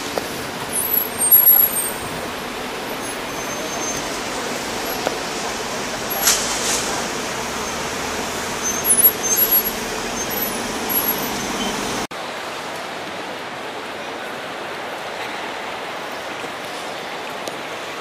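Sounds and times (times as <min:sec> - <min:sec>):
road traffic hum: 0:00.0 - 0:12.1
short high chirps: 0:00.8 - 0:02.2, 0:08.6 - 0:12.0.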